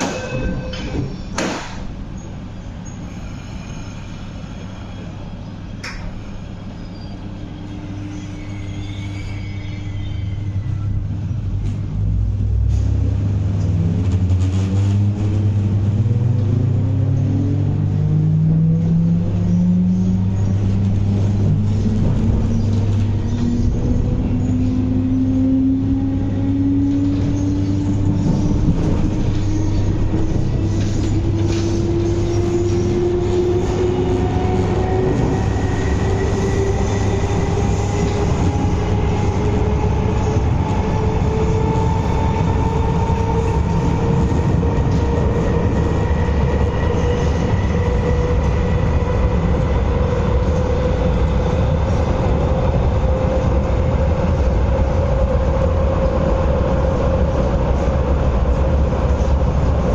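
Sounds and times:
train running rumble: 0.0s - 59.9s.

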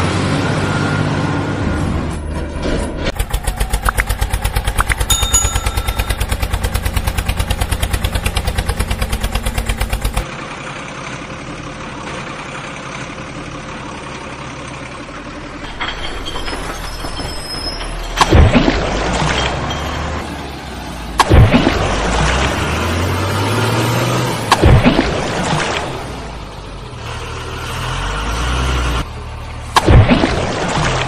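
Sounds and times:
engine chugging: 3.1s - 18.4s.

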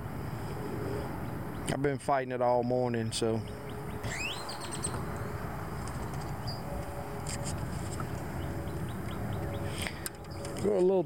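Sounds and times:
bird chirps: 3.4s - 5.3s, 6.0s - 10.6s
wind buffeting microphone: 3.4s - 10.8s.

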